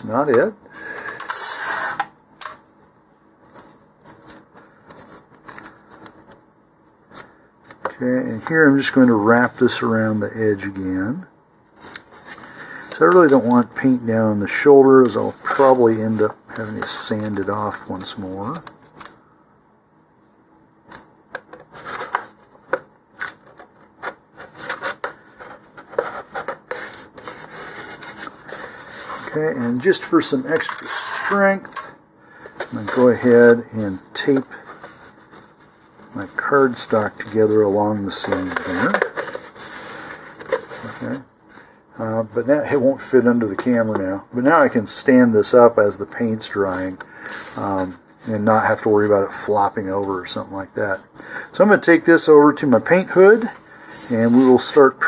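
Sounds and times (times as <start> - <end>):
tape and card rasping: 0.8 - 2.6, 20.9 - 33.5, 34.2 - 41.2.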